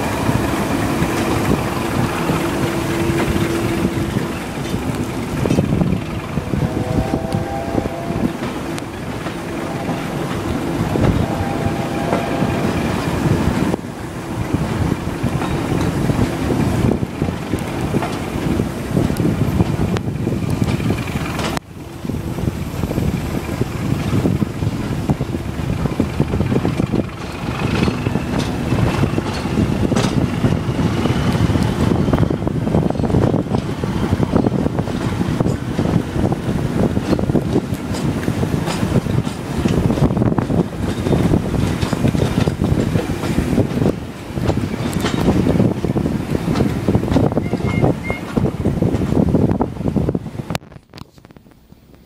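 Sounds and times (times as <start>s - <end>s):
train wheels rumbling on rail: 0.0s - 52.0s
wind buffeting microphone: 0.0s - 52.0s.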